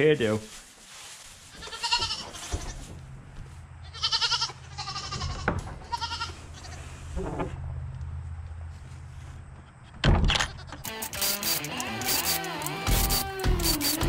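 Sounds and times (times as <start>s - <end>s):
young goats bleating: 1.5s - 2.9s, 3.8s - 7.0s.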